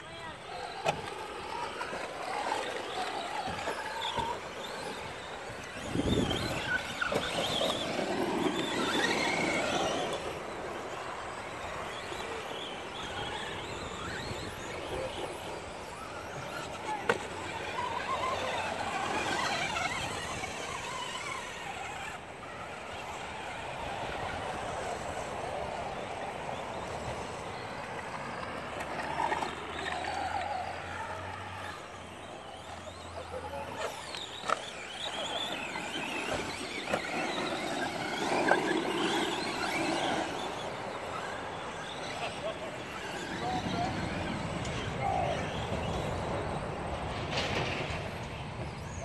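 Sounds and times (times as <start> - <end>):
radio-controlled car motors whining: 0.0 - 49.0.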